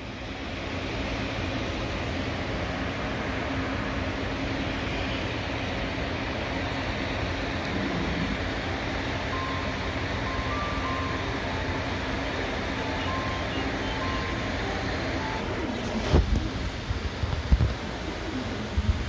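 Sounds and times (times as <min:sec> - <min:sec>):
low hum: 0:07.0 - 0:17.1.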